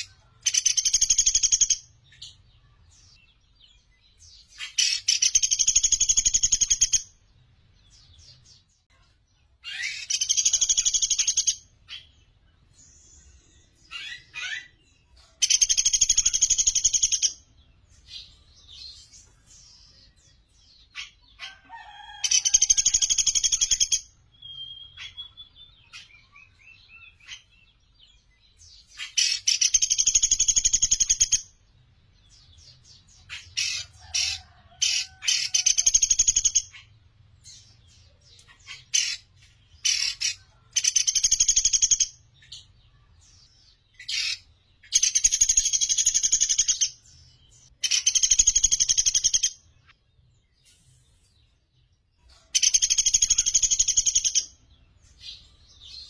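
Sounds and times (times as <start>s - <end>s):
woodpecker rattling trills: 33.3s - 36.9s, 52.6s - 54.5s.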